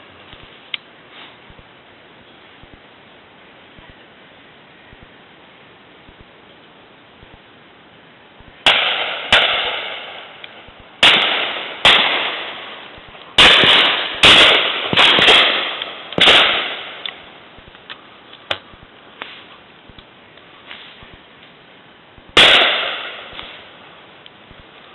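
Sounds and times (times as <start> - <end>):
distant gunshots: 8.6 - 17.0, 22.3 - 23.6
shotguns firing with echo: 8.6 - 17.2, 22.4 - 23.7.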